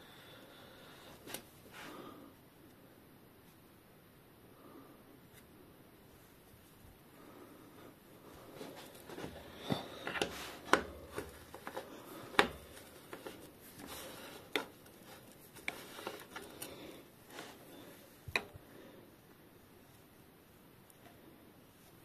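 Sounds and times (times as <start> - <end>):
rustle of hands: 6.1 - 19.0.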